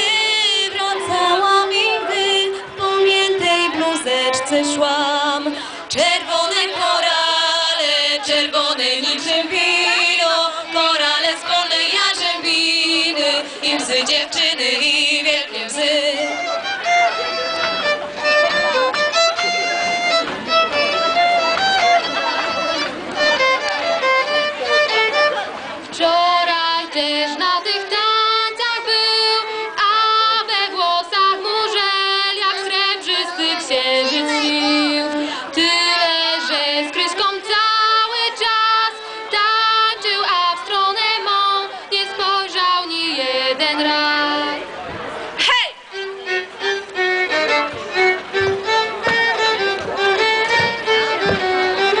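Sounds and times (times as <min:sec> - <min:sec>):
girl singing into microphone: 0:00.0 - 0:16.3, 0:25.9 - 0:44.7
violin melody: 0:00.0 - 0:52.0.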